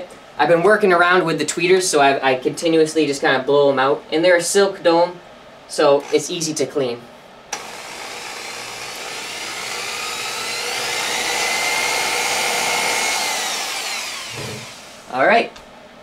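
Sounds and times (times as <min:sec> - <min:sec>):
electric drill whining: 0:06.0 - 0:06.3, 0:07.5 - 0:15.1.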